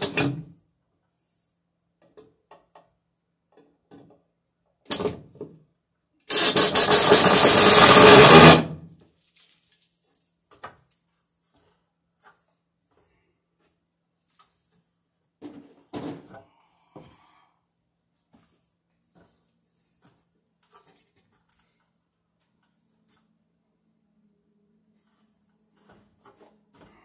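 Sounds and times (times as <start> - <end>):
cordless drill driving a screw: 6.3 - 8.7.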